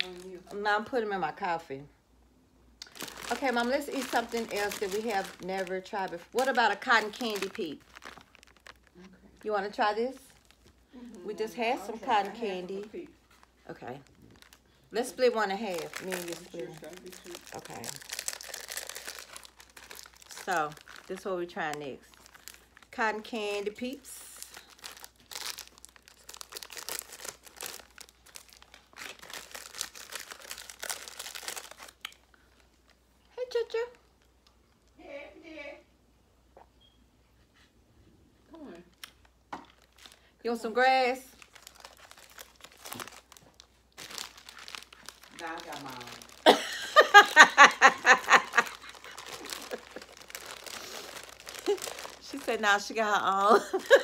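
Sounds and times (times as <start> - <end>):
plastic wrapper crinkling: 0.0 - 0.6, 2.8 - 33.1, 38.9 - 54.0
person laughing: 46.4 - 50.2, 53.5 - 54.0.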